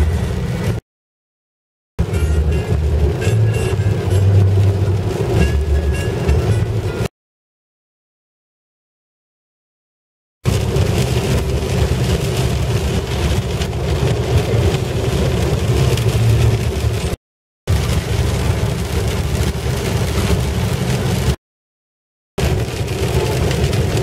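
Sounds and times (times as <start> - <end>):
diesel engine drone: 0.0 - 0.8, 2.0 - 7.1, 10.5 - 21.4, 22.4 - 24.0
tyres hissing on wet road: 10.5 - 21.4, 22.4 - 24.0.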